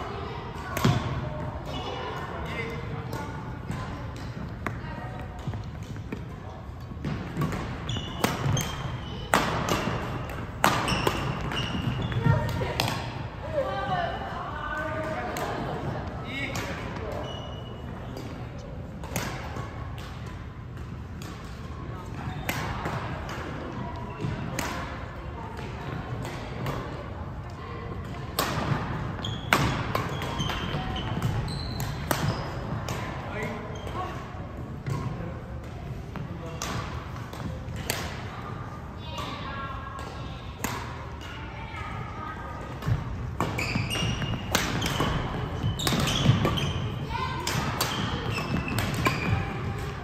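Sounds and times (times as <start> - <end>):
sneakers squeaking on court floor: 2.5 - 13.1, 16.3 - 18.6, 28.6 - 35.2, 42.8 - 50.0
racket hitting shuttlecock: 7.0 - 13.2, 28.1 - 28.8, 29.4 - 33.2, 36.5 - 38.2, 42.8 - 50.0.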